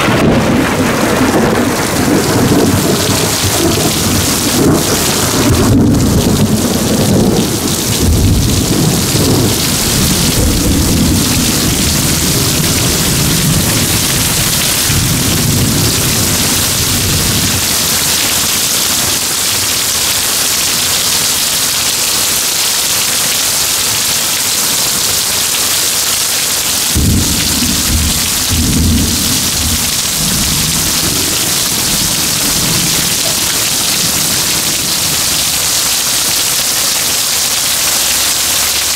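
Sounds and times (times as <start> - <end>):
thunder rumbling: 0.0 - 20.2, 26.8 - 37.2
heavy rain pouring: 0.0 - 38.9.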